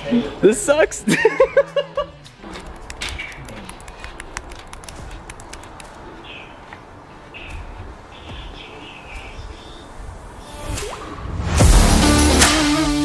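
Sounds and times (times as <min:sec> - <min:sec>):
person laughing: 0:01.0 - 0:02.2
light irregular clicks: 0:02.6 - 0:06.0.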